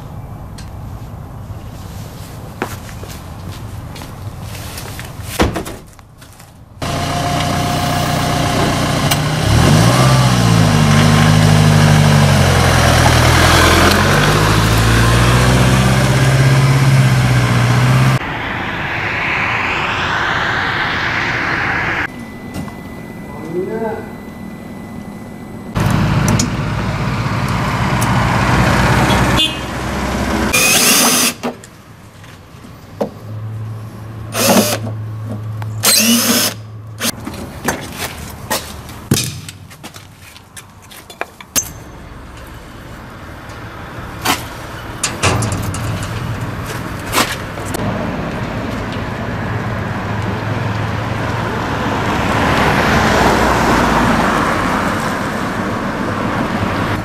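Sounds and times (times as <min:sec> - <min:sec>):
car driving past: 0:06.8 - 0:23.2, 0:46.6 - 0:57.0.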